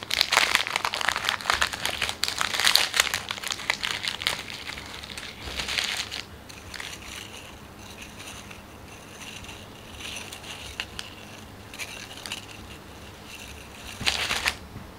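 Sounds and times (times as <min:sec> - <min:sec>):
crackers rustling and clicking: 0:00.0 - 0:14.6
plastic wrapper crinkling: 0:00.0 - 0:14.6.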